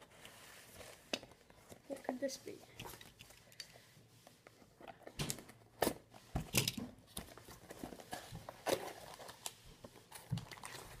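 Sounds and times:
cardboard crackles and taps: 0.0 - 2.1, 4.3 - 11.0.

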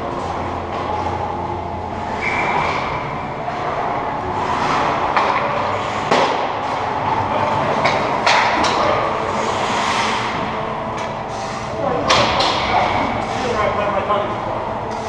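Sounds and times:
high squeal: 2.1 - 3.2
sticks and puck clacking: 7.8 - 11.2
skates scraping on ice: 9.4 - 10.4.

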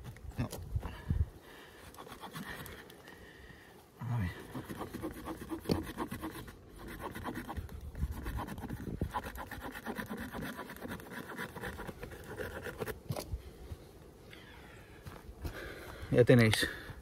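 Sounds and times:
saw blade cutting a stick: 4.4 - 13.0.

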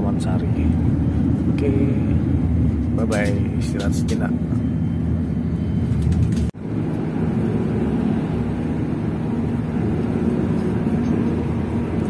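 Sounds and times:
coach engine and road noise: 0.0 - 12.0.

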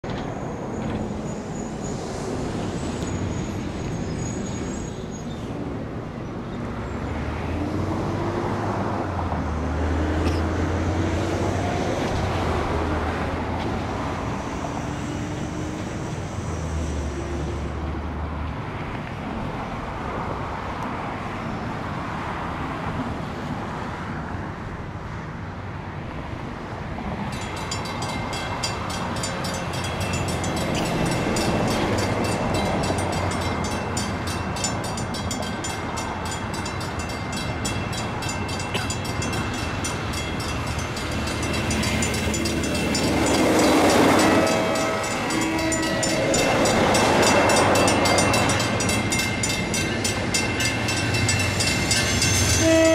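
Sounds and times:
traffic noise: 0.0 - 52.9
railroad crossing bell ringing: 27.2 - 52.9.

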